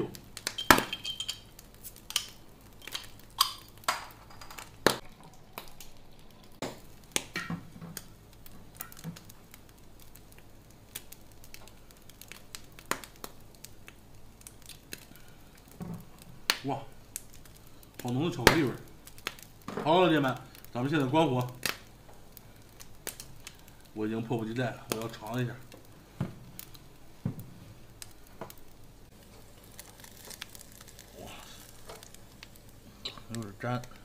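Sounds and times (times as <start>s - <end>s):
bottle and glass clinking: 0.5s - 1.5s.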